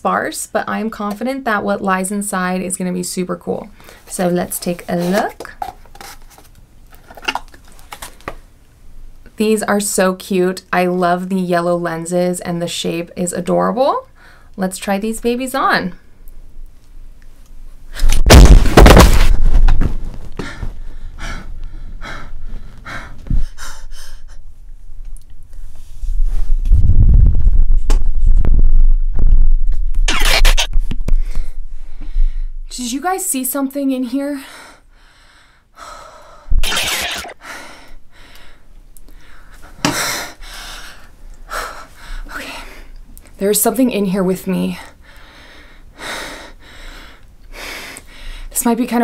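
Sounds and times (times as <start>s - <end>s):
woman panting: 20.4s - 24.4s, 45.0s - 48.5s.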